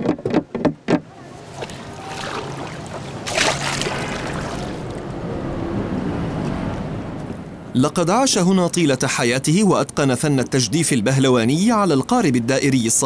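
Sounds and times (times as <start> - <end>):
oar knocking against boat: 0.0 - 1.8
water sloshing: 0.0 - 5.2
water splash: 1.4 - 5.0.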